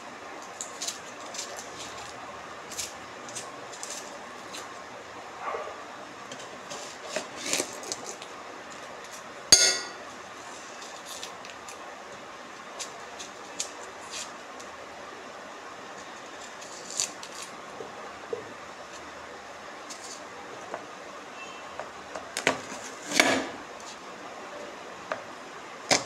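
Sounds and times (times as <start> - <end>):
loud ringing metal clang: 9.5 - 10.0
utensil clinking on steel pot: 9.6 - 10.0.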